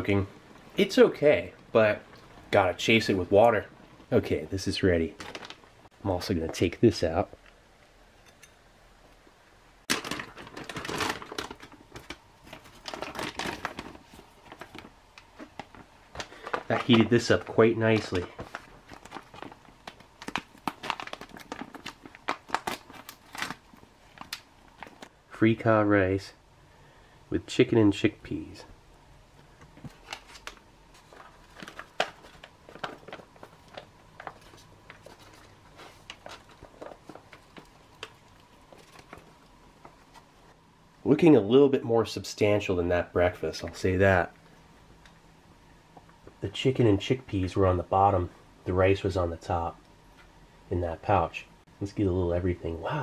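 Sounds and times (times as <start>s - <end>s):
packaging crinkling and rustling: 5.0s - 5.9s, 9.9s - 25.2s, 29.4s - 40.6s.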